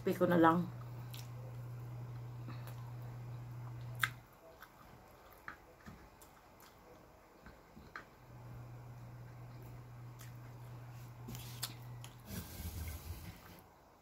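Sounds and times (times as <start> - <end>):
steady low hum: 0.0 - 14.0
chewing crunchy fried fish: 0.8 - 3.0, 3.6 - 8.0.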